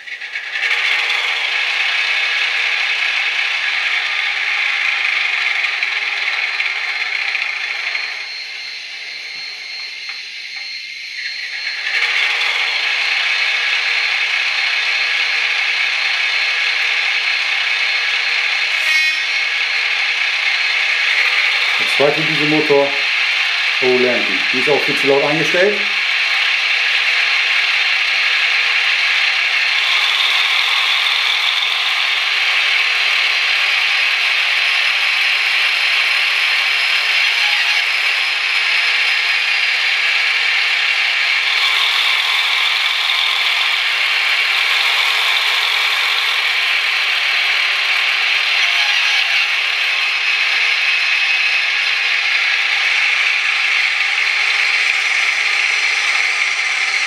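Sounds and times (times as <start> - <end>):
tinny diesel engine sound from loudspeaker: 21.7 - 26.0.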